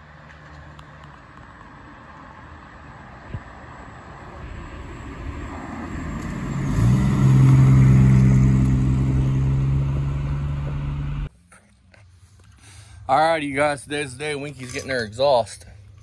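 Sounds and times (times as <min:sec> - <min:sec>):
car passing by: 0:01.9 - 0:11.3.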